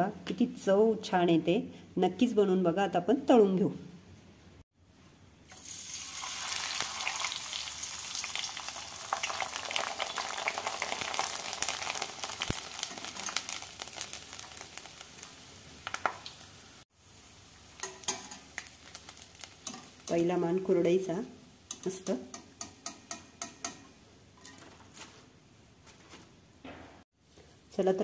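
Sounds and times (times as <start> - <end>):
food sizzling in hot oil: 5.5 - 24.5.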